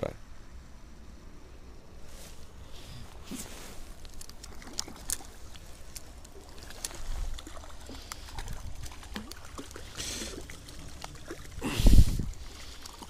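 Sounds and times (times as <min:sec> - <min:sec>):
fish splashing in water: 0:03.8 - 0:13.0.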